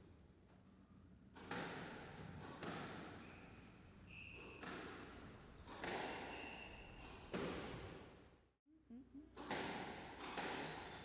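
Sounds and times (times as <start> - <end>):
ball hitting walls: 1.3 - 3.2, 4.4 - 6.4, 7.0 - 8.0, 9.4 - 11.0
racket hitting squash ball: 1.3 - 8.2, 9.4 - 11.0
shoes squeaking on wooden floor: 10.4 - 11.0.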